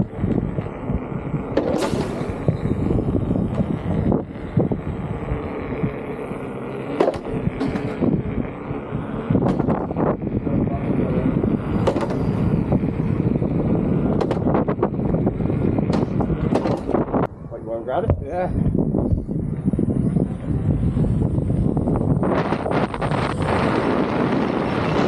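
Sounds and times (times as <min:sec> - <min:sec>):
tyres rolling on concrete: 0:00.0 - 0:17.2.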